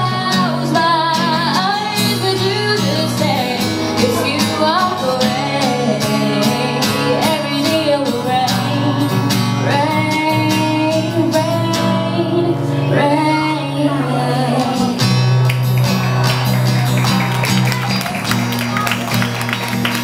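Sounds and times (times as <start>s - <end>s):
woman singing a ballad: 0.0s - 15.2s
strummed acoustic guitar: 0.0s - 20.0s.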